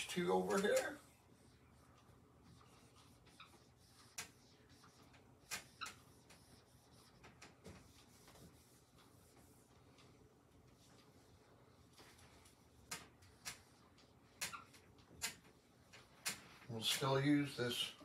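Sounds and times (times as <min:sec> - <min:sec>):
marker squeaking on whiteboard: 0:00.4 - 0:08.8, 0:12.7 - 0:15.6.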